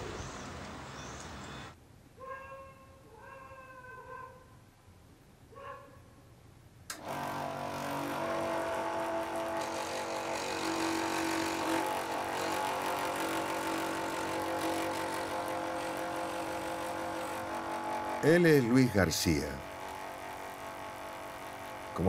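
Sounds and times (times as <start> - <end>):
scroll saw cutting wood: 6.9 - 22.0.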